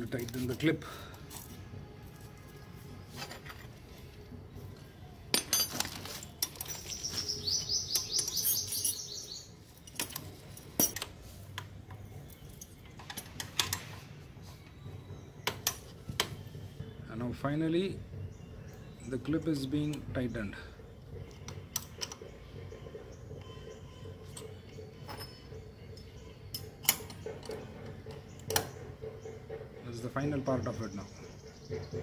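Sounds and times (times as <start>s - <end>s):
metal tools clinking: 5.3s - 11.2s, 24.2s - 27.6s.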